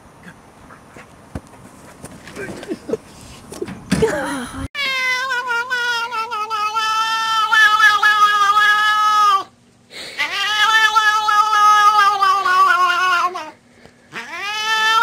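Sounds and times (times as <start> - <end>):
pet howling: 5.0 - 9.5, 10.2 - 15.0.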